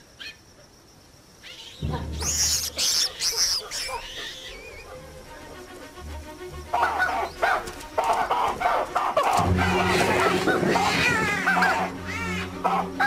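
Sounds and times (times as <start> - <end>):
baboons screaming: 1.4 - 5.2, 6.6 - 13.0
baboons barking: 1.5 - 5.7, 6.6 - 13.0
background music with low drone: 1.6 - 13.0.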